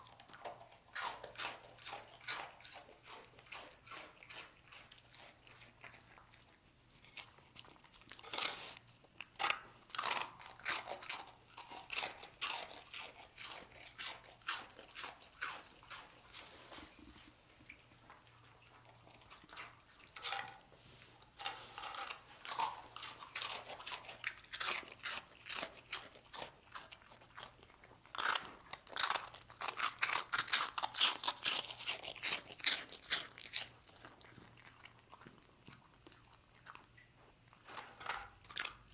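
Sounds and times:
dog crunching dry bread: 0:00.0 - 0:38.9.

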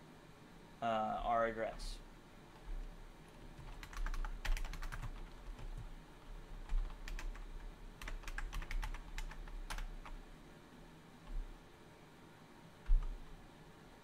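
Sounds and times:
faint low hum: 0:00.0 - 0:14.0
computer keyboard typing: 0:02.6 - 0:10.2, 0:12.8 - 0:13.2.

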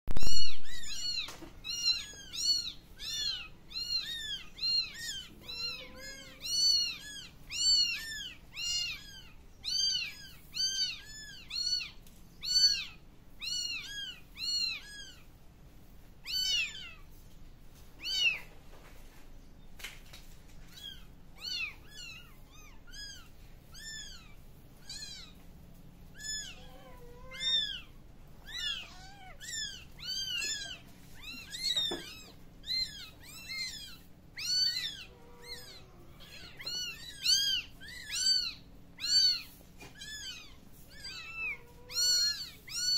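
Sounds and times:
kitten mewing: 0:00.1 - 0:15.2, 0:26.2 - 0:42.9.

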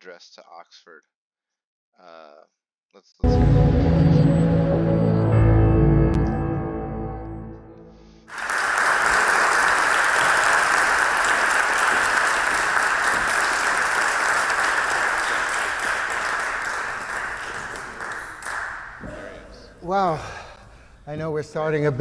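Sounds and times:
audience applauding: 0:08.3 - 0:19.6.

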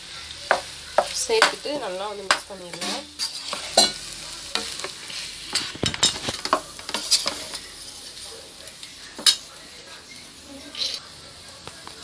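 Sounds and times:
utensil scraping rice in a pot: 0:02.7 - 0:08.0.

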